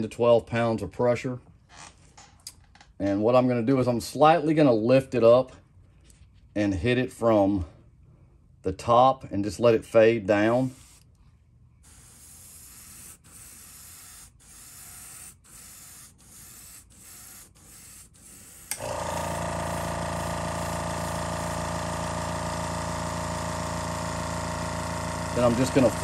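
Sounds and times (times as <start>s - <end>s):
airbrush spray hiss: 10.6s - 11.0s, 11.9s - 18.7s
motor humming: 11.8s - 26.0s.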